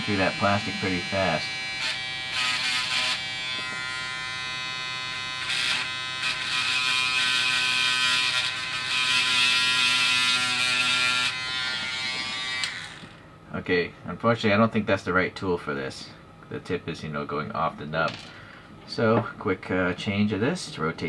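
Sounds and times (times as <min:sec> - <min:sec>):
electric sander pen buzzing: 0:00.0 - 0:13.2.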